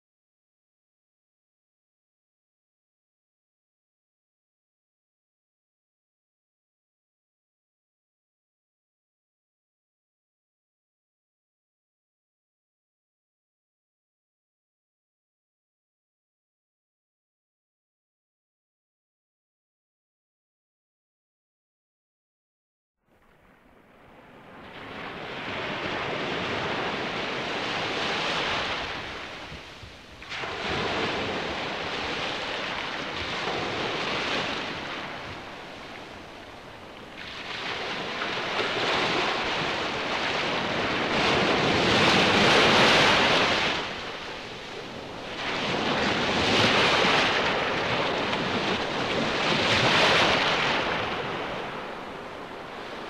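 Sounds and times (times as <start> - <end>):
strong wind: 23.4 - 53.0.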